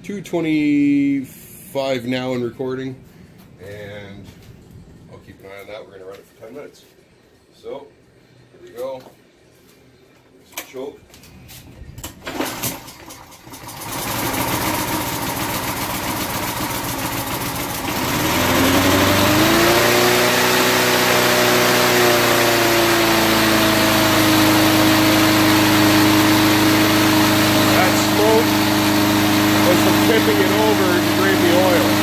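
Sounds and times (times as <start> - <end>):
lawnmower engine running: 12.2 - 32.0.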